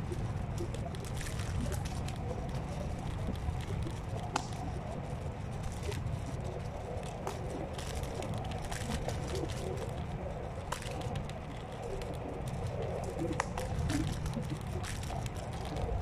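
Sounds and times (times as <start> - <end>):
scooter wheels and wind rumble: 0.0 - 16.0
small clicks and crackles: 0.0 - 16.0.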